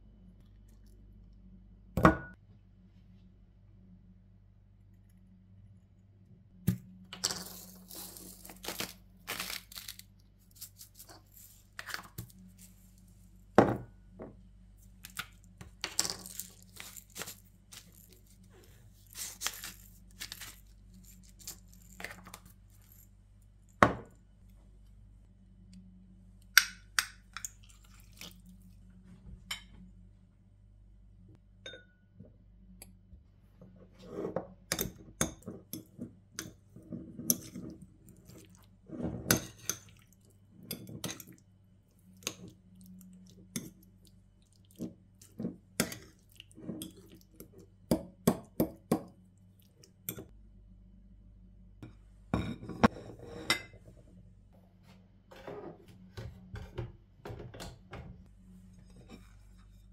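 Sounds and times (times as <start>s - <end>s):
fork scraping a ceramic bowl: 52.5s - 53.8s.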